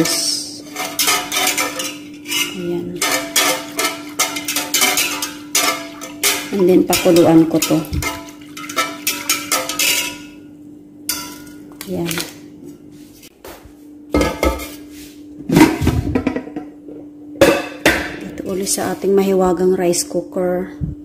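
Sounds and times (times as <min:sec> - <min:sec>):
metal whisk clattering in pot: 0:00.0 - 0:10.4, 0:11.1 - 0:11.6
steady low hum: 0:00.0 - 0:21.0.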